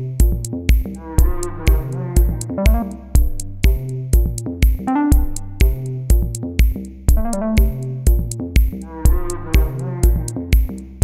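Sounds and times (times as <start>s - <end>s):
steady kick-drum beat: 0.0s - 11.0s
synthesizer melody: 1.1s - 3.3s, 4.9s - 5.8s, 7.2s - 8.1s.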